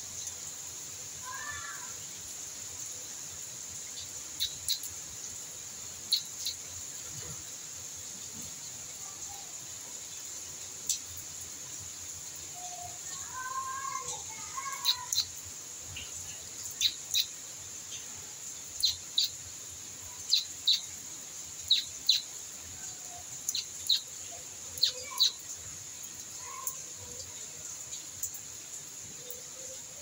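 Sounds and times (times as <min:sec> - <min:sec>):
steady high hiss: 0:00.0 - 0:30.0
bird chirping: 0:04.4 - 0:04.9, 0:06.1 - 0:06.6, 0:14.6 - 0:18.1, 0:18.7 - 0:19.4, 0:20.1 - 0:20.9, 0:21.6 - 0:22.3, 0:23.1 - 0:24.2, 0:24.8 - 0:25.4.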